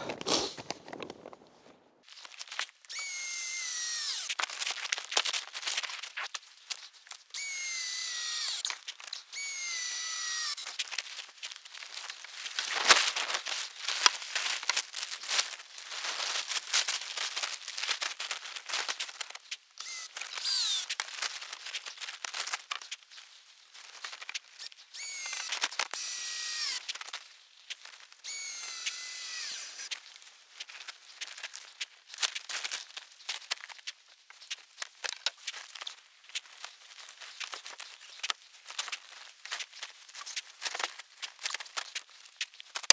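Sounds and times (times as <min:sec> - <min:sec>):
plastic tarp rustling and crinkling: 0:04.1 - 0:07.3, 0:10.5 - 0:24.6, 0:29.8 - 0:42.9.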